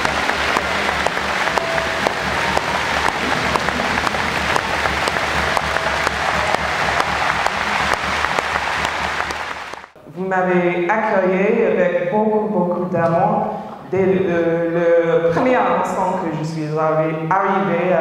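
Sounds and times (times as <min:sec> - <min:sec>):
large crowd applauding: 0:00.0 - 0:10.0.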